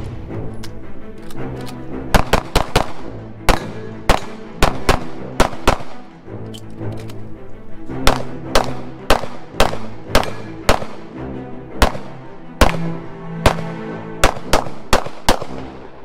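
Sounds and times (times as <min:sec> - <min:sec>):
background music: 0:00.0 - 0:16.0
pistol shots: 0:01.2 - 0:06.1, 0:08.0 - 0:11.1, 0:11.8 - 0:15.8.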